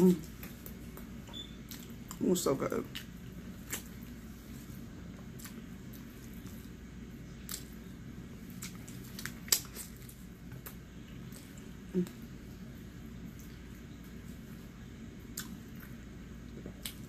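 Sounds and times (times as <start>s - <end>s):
wet chewing mouth noises: 15.3s - 17.0s.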